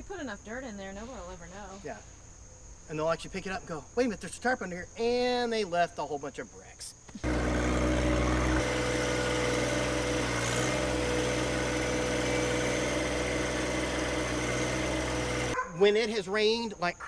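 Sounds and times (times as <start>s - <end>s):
loader bucket dumping soil: 7.2s - 15.6s
tractor diesel engine running: 7.2s - 15.6s.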